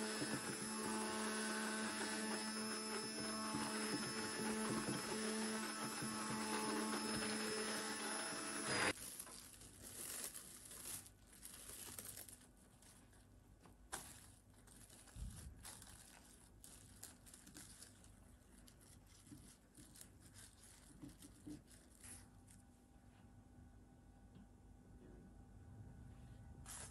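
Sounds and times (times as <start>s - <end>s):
hand blender motor: 0.0s - 9.0s
plastic cling film crinkling: 8.9s - 22.7s.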